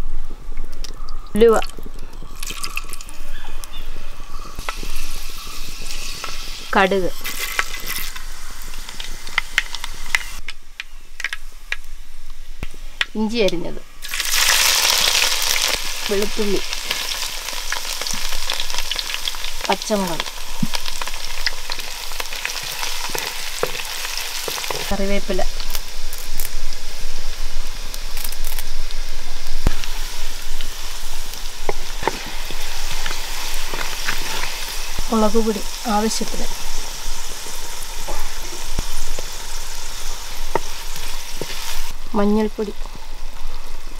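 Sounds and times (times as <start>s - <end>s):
oil sizzling: 1.4s - 13.3s, 14.0s - 43.9s
seeds popping: 1.6s - 3.8s, 4.6s - 11.8s, 28.0s - 28.8s, 29.6s - 36.7s.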